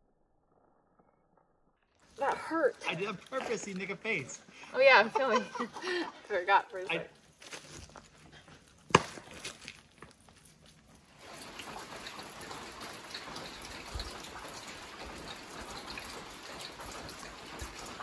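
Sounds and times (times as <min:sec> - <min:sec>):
light rain patter: 0:02.0 - 0:07.4, 0:09.7 - 0:18.0
water drips: 0:10.9 - 0:18.0.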